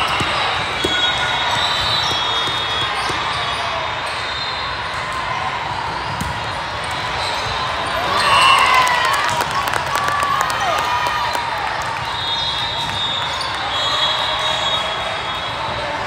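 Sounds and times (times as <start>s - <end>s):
volleyball hits and bounces: 0.0s - 3.6s, 5.1s - 8.2s
many voices in echoing hall: 0.0s - 16.0s
players shouting: 6.8s - 11.9s.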